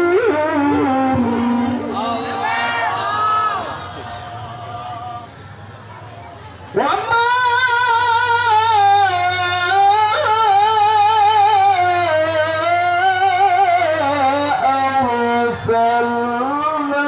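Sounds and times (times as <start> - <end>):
man chanting into a microphone: 6.7 - 17.0.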